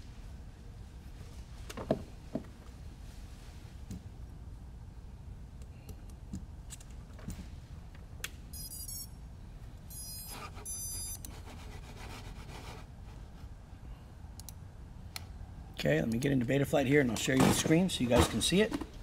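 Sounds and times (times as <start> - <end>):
high electronic beeps: 8.5 - 9.2, 9.9 - 11.2.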